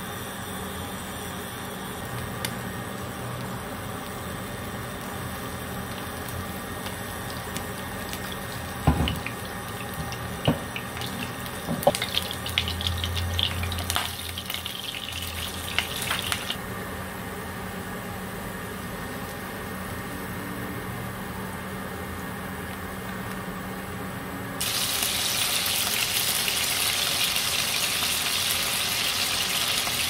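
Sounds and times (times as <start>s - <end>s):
garlic sizzling in oil: 0.2s - 16.6s, 24.6s - 30.0s
spatula knocking pan: 11.6s - 12.2s.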